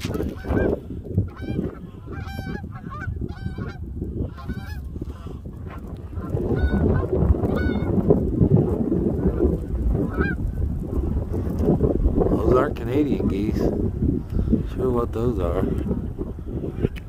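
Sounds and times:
geese honking in flight: 0.0s - 7.9s, 10.0s - 10.4s.

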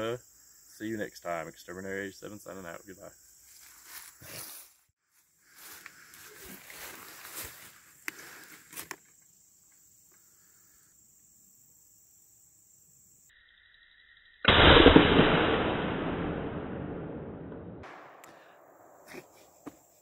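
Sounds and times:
rifle shot boom: 14.5s - 19.0s.

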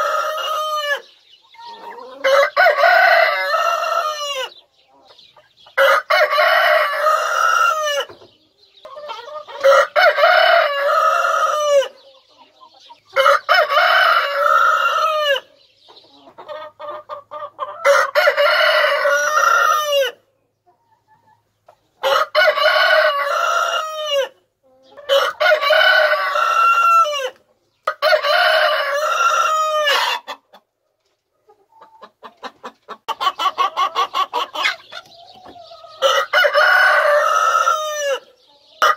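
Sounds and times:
rooster crowing: 2.1s - 4.5s, 9.6s - 11.9s, 17.8s - 20.2s, 22.0s - 24.3s, 25.1s - 27.4s, 36.0s - 38.3s.

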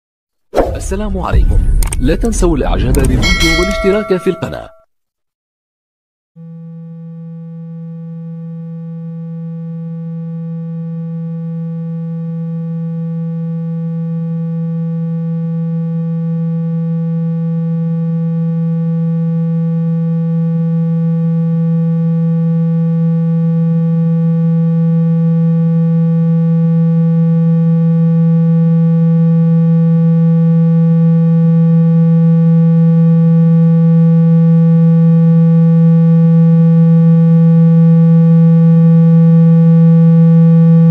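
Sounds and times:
low electronic tone: 3.2s - 4.8s.

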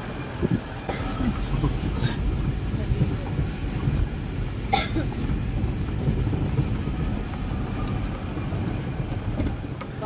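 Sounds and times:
vehicle rumbling on dirt road: 0.0s - 10.0s.

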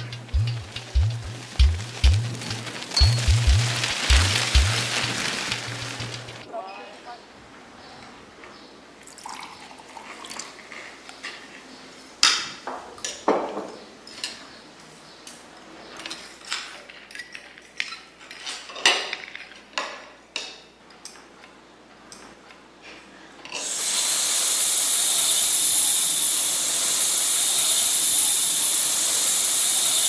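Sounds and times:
cutlery clinking on plates: 12.2s - 14.6s, 16.0s - 21.3s.

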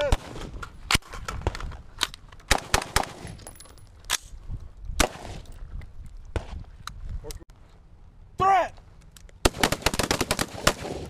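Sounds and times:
rifle shots: 2.5s - 3.4s, 5.0s - 5.4s, 9.4s - 11.0s.

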